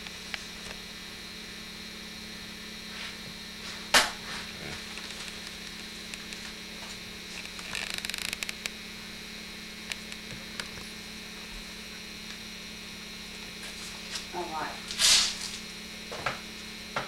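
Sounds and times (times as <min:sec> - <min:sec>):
electrical mains hum: 0:00.0 - 0:17.0
handling noise crackle: 0:04.6 - 0:08.8
small clicks: 0:07.4 - 0:08.8.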